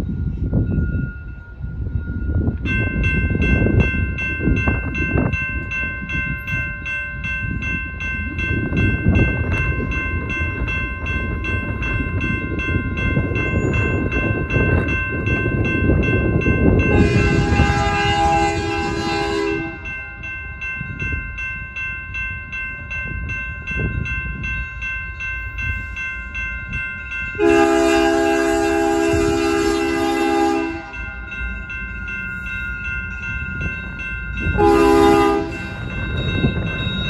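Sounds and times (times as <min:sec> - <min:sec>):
steady ringing: 0:00.1 - 0:37.0
locomotive air horn: 0:16.9 - 0:19.9, 0:27.4 - 0:31.0, 0:34.6 - 0:35.6.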